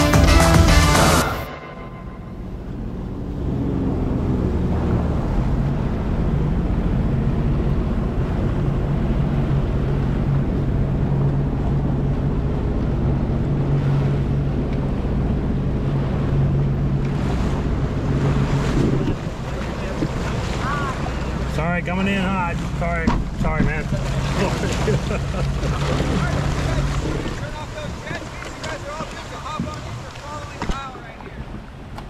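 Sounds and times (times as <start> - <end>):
jet ski engine running: 0.0 - 32.0
water noise: 0.0 - 32.0
wind on microphone: 2.5 - 21.5.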